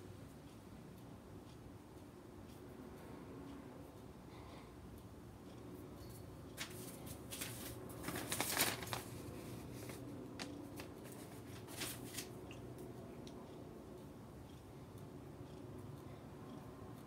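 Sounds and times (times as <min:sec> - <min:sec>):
paper rustling and crinkling: 0:06.6 - 0:12.3.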